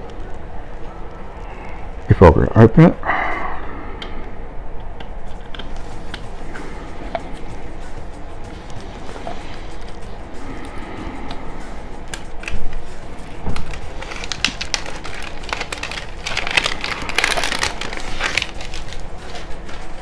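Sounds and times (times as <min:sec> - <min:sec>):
plastic packaging crackling: 0:12.0 - 0:20.0.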